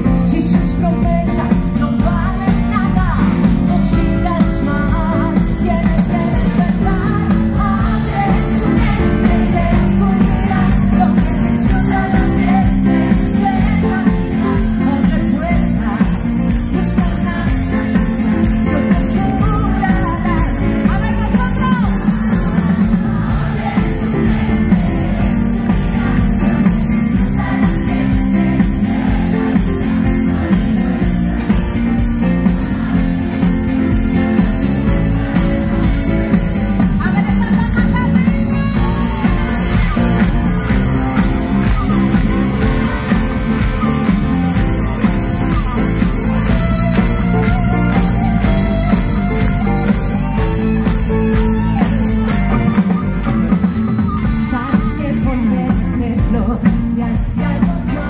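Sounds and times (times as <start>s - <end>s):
woman singing: 0.0s - 31.2s, 34.4s - 45.1s, 54.2s - 58.0s
live rock band playing: 0.0s - 58.0s.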